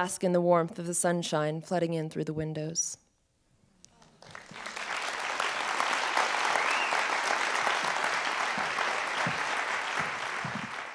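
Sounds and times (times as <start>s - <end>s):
audience applauding: 4.2s - 10.9s.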